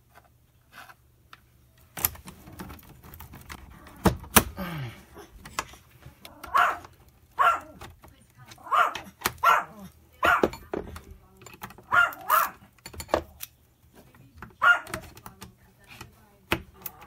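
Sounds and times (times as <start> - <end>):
dog barking: 6.3 - 7.8, 8.6 - 10.6, 11.9 - 12.7, 14.6 - 15.0.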